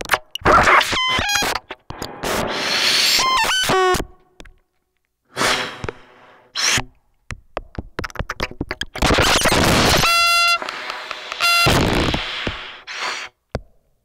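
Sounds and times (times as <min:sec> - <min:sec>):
sharp clicks and pops: 0:00.0 - 0:02.5, 0:06.6 - 0:13.7
bursts of hiss: 0:02.0 - 0:03.9, 0:09.2 - 0:13.4.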